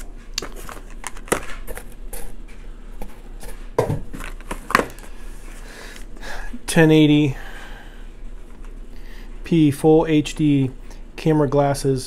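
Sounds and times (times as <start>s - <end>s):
paper rustling: 0.0s - 2.4s.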